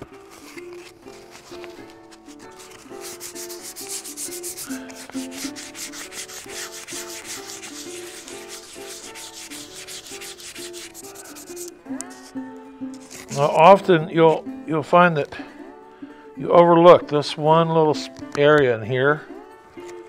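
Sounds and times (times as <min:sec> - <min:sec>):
sandpaper rubbing on stone: 0:00.2 - 0:12.2, 0:13.0 - 0:13.7.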